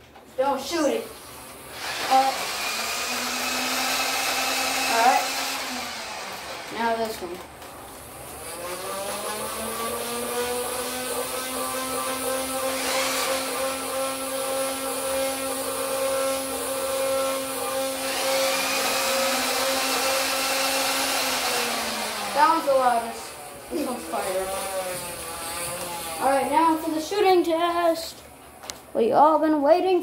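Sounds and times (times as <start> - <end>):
blaster flywheel motor whine: 1.7 - 7.0, 8.4 - 26.5.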